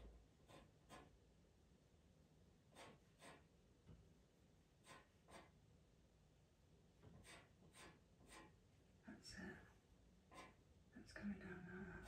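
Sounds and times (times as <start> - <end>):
pencil scratching on paper: 0.0 - 1.2, 2.7 - 3.5, 4.8 - 5.6, 7.0 - 8.6, 10.3 - 10.6.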